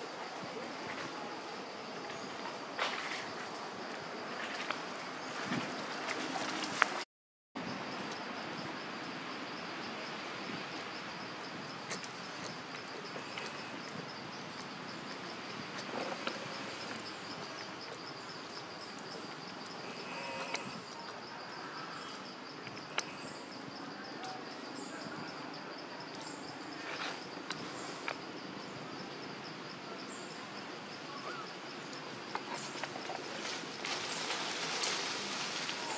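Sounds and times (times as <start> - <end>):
insects trilling: 7.6 - 35.9
dry leaves rustling: 32.6 - 35.9.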